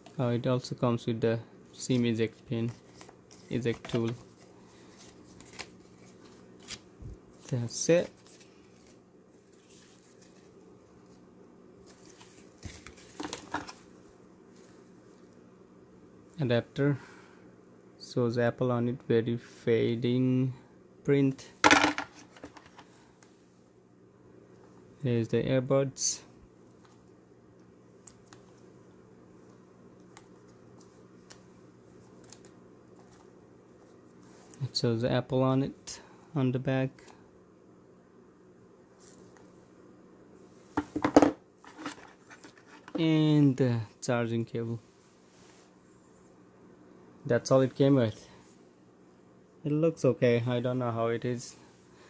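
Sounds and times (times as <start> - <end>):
low steady hum: 0.0 - 52.0
paper rustling: 2.4 - 11.2, 41.6 - 43.0.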